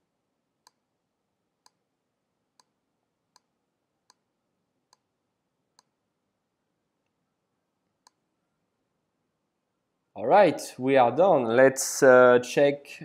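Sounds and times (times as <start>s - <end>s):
faint mouse clicks: 0.6s - 0.9s, 2.6s - 4.3s, 5.7s - 6.0s, 8.0s - 8.2s.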